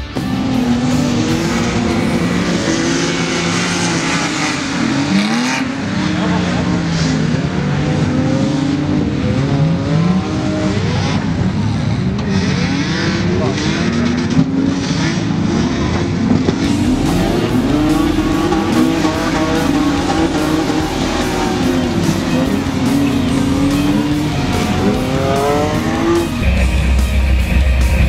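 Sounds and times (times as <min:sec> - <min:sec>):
loud music: 0:00.0 - 0:07.4, 0:16.6 - 0:28.0
race car engines revving: 0:00.0 - 0:28.0.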